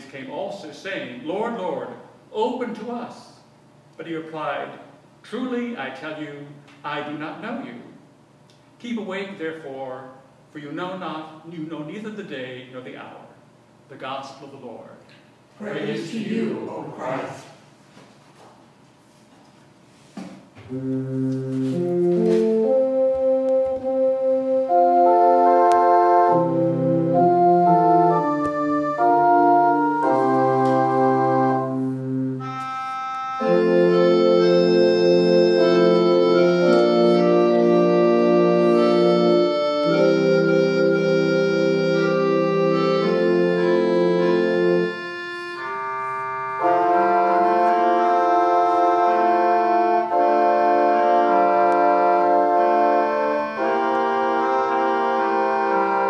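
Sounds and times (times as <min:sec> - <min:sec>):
church organ playing chords: 0:20.7 - 0:56.0.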